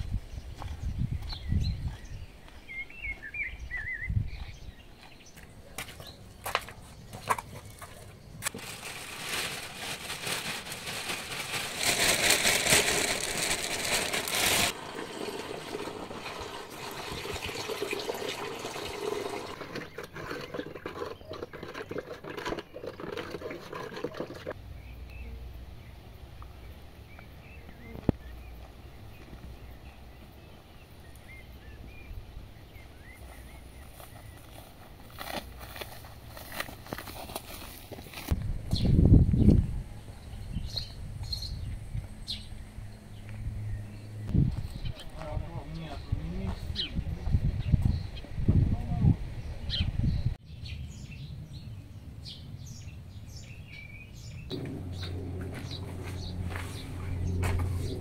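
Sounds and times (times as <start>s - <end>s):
birds chirping: 0.0s - 23.2s, 24.6s - 34.8s, 38.7s - 58.0s
water pouring into plastic bucket: 11.6s - 24.5s.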